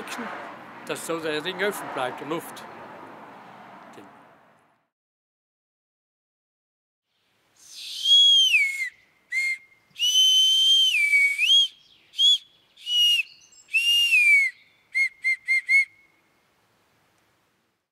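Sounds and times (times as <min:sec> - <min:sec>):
whistle short toots: 0:07.6 - 0:16.1
bark whistle sliding notes: 0:07.7 - 0:16.0.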